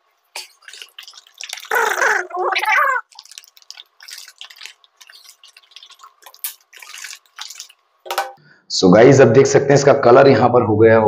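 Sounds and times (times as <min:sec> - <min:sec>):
liquid sloshing in a bottle: 0:00.0 - 0:08.4.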